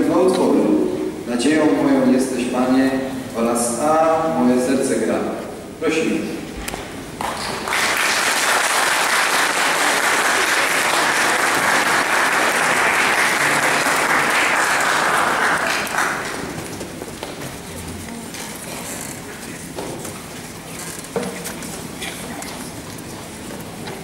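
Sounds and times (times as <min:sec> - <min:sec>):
audience applauding: 0:07.2 - 0:17.3.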